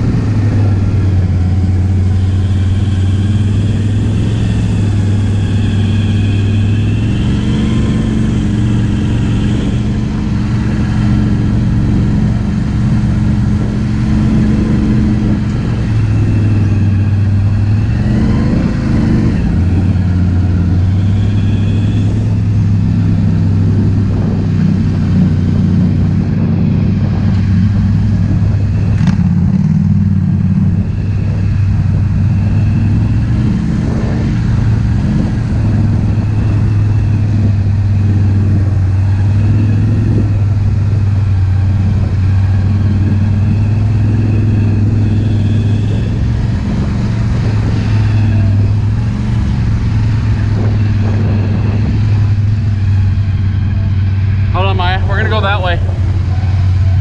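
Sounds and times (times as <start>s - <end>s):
atv engine running: 0.0s - 57.0s.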